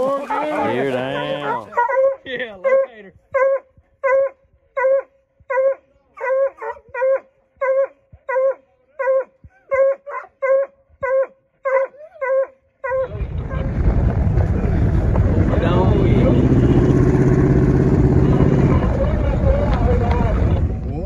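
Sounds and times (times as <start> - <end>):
dog barking: 0.1 - 13.1.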